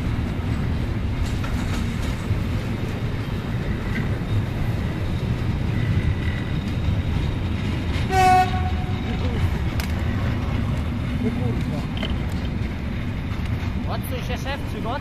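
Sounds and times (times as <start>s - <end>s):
freight wagons rumbling and clattering: 0.0s - 15.0s
locomotive horn blast: 8.1s - 9.1s.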